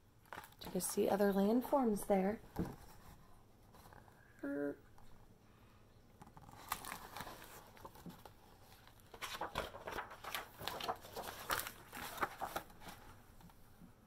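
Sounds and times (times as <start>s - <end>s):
book pages rustling and turning: 0.3s - 1.0s, 6.2s - 13.9s.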